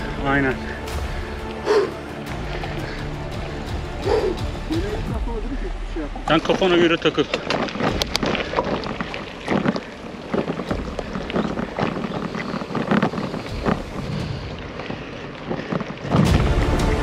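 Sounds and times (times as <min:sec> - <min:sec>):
wind buffeting microphone: 0:02.7 - 0:17.0
bicycle tyres crunching on gravel: 0:06.3 - 0:17.0.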